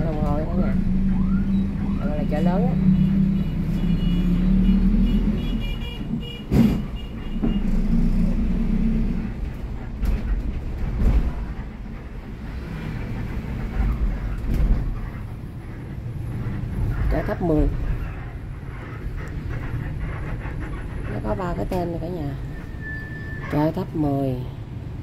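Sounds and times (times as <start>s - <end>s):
bus engine and road rumble: 0.0s - 25.0s
sharp knocks and rattles: 9.2s - 22.2s.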